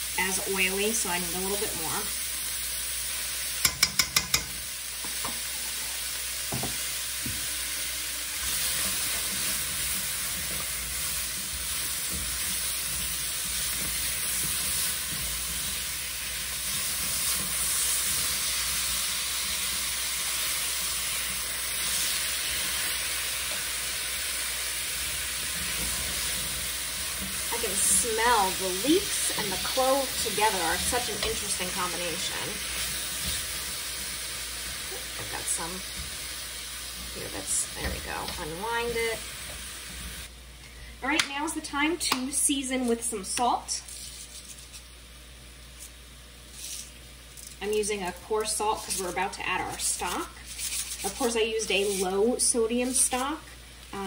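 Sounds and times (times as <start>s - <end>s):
vegetables sizzling in a skillet: 0.0s - 54.0s
spatula stirring: 3.6s - 4.5s, 8.4s - 38.6s, 48.0s - 52.2s.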